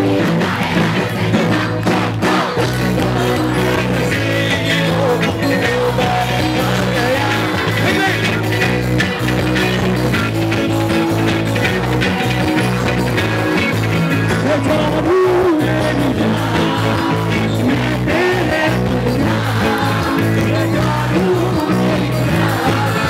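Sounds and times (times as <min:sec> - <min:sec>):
rock band playing live: 0:00.0 - 0:23.0.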